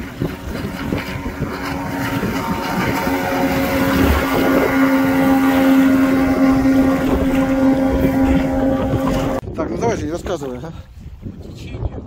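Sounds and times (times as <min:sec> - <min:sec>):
outboard motor running: 0:00.0 - 0:09.4
water noise: 0:00.0 - 0:11.4
wind: 0:00.0 - 0:12.0.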